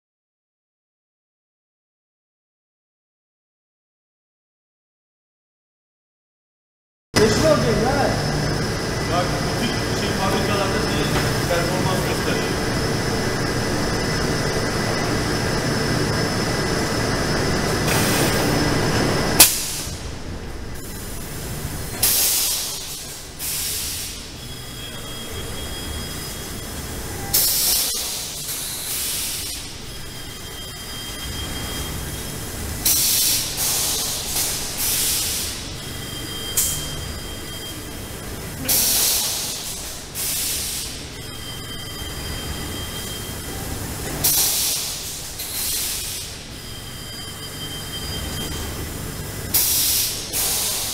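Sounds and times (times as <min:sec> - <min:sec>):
low machine hum: 0:07.2 - 0:50.8
loud dense machine noise: 0:07.2 - 0:50.9
compressed air hissing blasts: 0:22.0 - 0:24.3, 0:27.3 - 0:29.7, 0:32.8 - 0:35.7, 0:44.2 - 0:46.4, 0:49.5 - 0:50.9.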